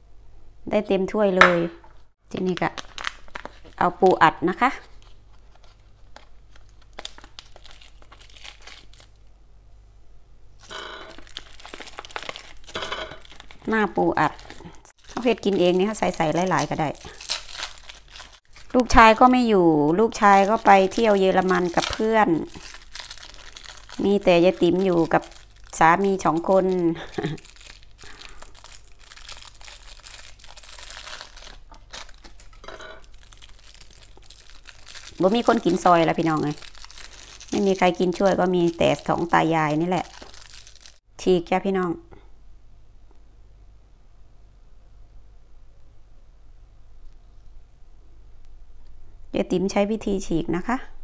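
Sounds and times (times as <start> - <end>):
plastic wrapping crinkling: 2.3 - 9.3, 10.6 - 41.0.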